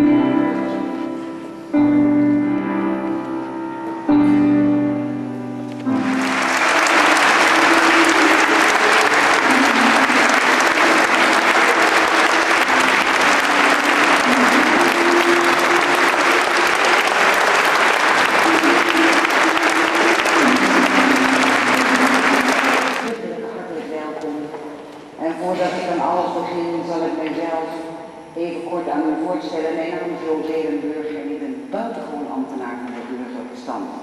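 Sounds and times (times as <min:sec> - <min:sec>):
music with held notes: 0:00.0 - 0:23.1
crowd applauding: 0:05.7 - 0:23.1.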